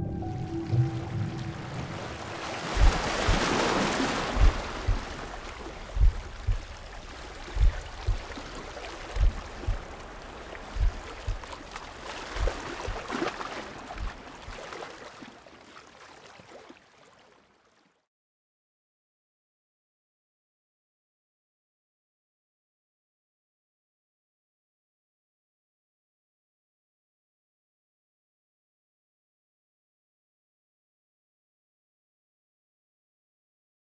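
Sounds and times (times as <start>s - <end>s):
low double thumps: 0.0s - 6.8s, 7.5s - 8.3s, 9.2s - 10.0s, 10.7s - 11.5s, 14.0s - 14.2s
sea water washing and gurgling: 0.0s - 17.9s.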